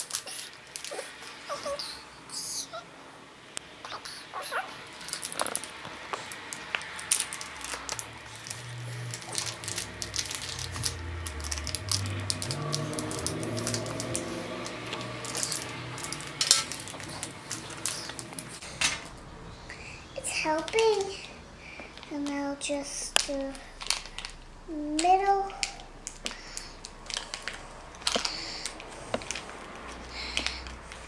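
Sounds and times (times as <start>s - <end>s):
trinkets clicking and tapping: 5.0s - 19.0s.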